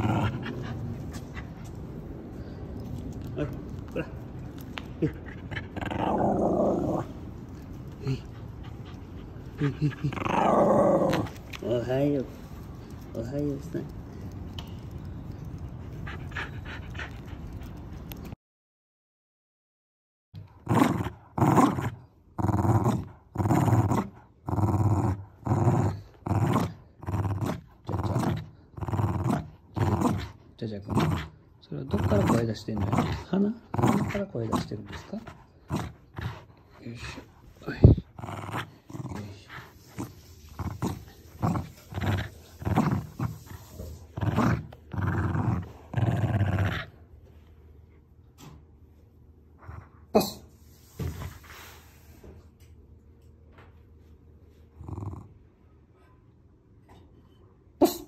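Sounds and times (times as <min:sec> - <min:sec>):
dog growling in play: 0:00.0 - 0:01.6, 0:03.2 - 0:11.9, 0:20.4 - 0:47.1, 0:54.8 - 0:55.5.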